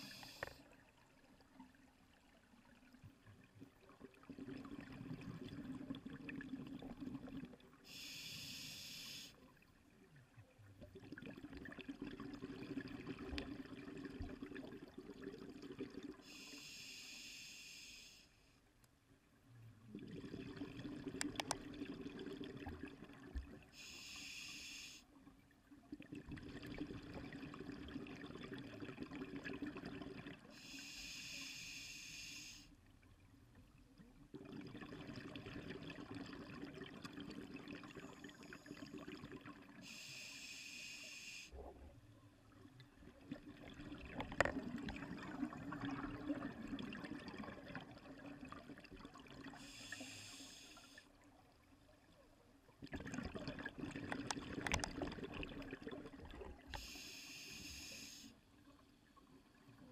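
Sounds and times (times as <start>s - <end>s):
regulator inhale hiss: 0.0s - 0.6s, 7.8s - 9.4s, 16.2s - 18.5s, 23.8s - 25.1s, 30.5s - 32.8s, 39.8s - 41.6s, 49.6s - 51.1s, 56.7s - 58.4s
exhaled air bubbling: 19.9s - 23.8s, 42.6s - 49.8s, 52.8s - 56.9s.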